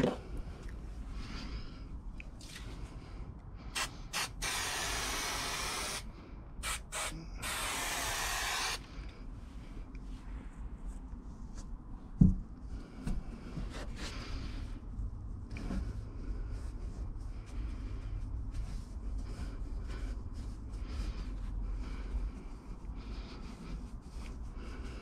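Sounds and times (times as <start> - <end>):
aerosol spray hissing: 3.8 - 8.8.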